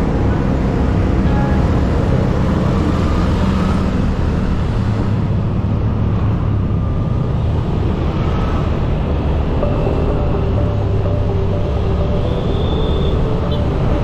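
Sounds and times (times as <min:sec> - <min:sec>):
road noise: 0:00.0 - 0:14.0.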